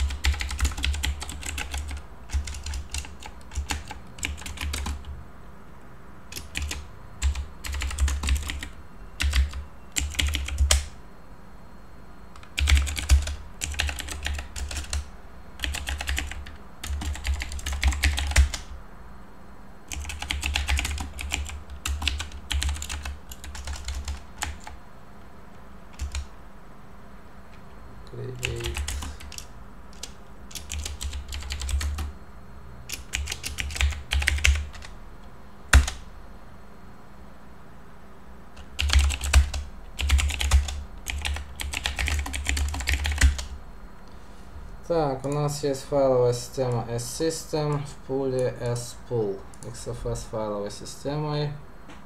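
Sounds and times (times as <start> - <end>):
typing on computer keyboard: 0.0 - 5.1, 6.3 - 10.9, 12.4 - 18.7, 19.9 - 24.8, 25.9 - 26.3, 28.3 - 32.1, 32.9 - 34.9, 35.7 - 36.0, 38.6 - 43.5.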